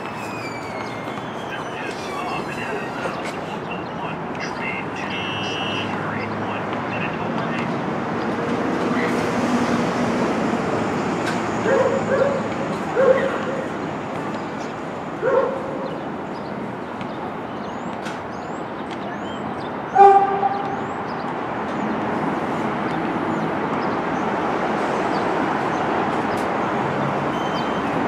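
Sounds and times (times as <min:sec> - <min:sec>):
subway train running: 0:00.0 - 0:28.0
small birds chirping: 0:00.1 - 0:08.4, 0:15.4 - 0:24.4
dog barking: 0:11.6 - 0:13.7, 0:15.2 - 0:16.0.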